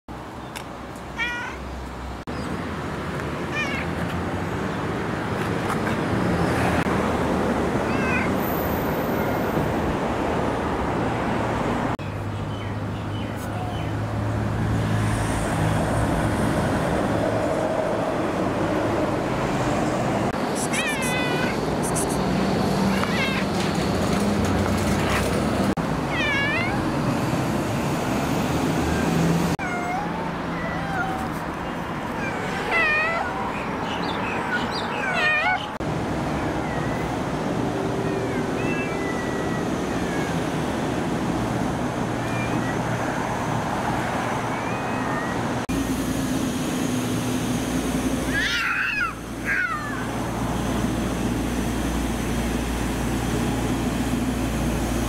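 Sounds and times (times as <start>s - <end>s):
cat meowing: 1.2s - 1.6s, 3.5s - 3.9s, 7.9s - 8.4s, 20.6s - 21.6s, 22.9s - 23.5s, 26.1s - 26.8s, 29.6s - 31.4s, 32.1s - 35.7s, 38.0s - 40.4s.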